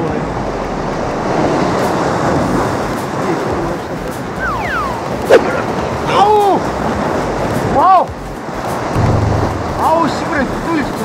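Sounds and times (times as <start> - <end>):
waves breaking on rocks: 0.0 - 11.0.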